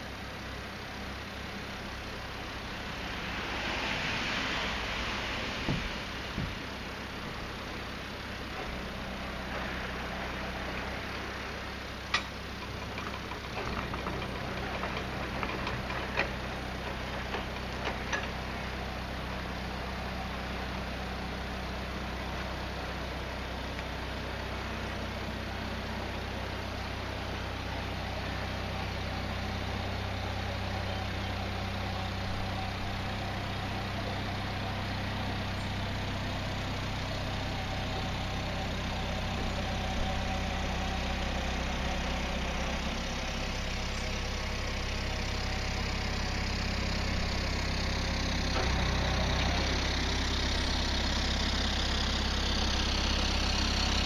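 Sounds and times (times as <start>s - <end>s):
boat diesel engine throbbing: 0.0s - 54.0s
sharp clicks and knocks: 12.1s - 18.6s.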